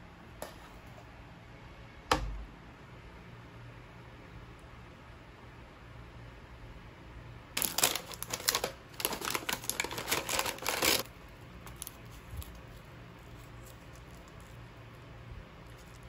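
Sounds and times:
plastic packaging crinkling: 7.6s - 15.0s, 15.6s - 16.0s.

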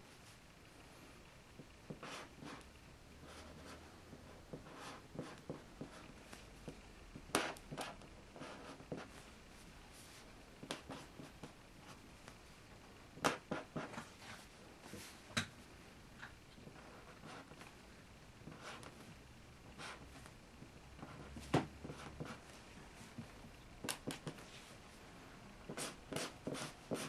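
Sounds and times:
felt-tip pens drawing on paper: 25.7s - 27.0s.

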